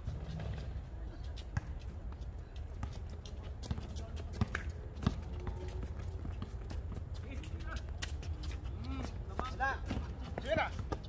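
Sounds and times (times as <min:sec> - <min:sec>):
basketball bouncing: 0:03.6 - 0:05.6
shoes slapping on hard court: 0:03.6 - 0:11.0.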